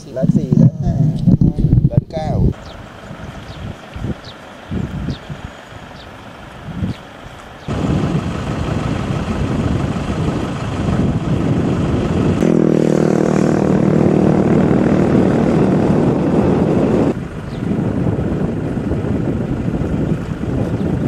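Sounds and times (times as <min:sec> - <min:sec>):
wind buffeting microphone: 0:00.0 - 0:21.0
steady motor drone: 0:07.6 - 0:21.0.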